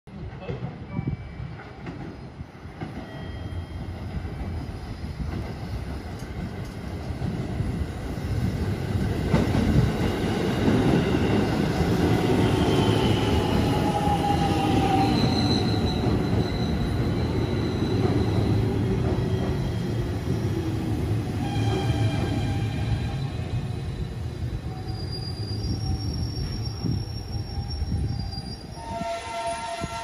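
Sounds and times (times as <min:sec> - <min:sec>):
train wheels rumbling on rail: 0:00.1 - 0:30.0
wheel and brake squeals: 0:12.5 - 0:19.9, 0:21.4 - 0:30.0.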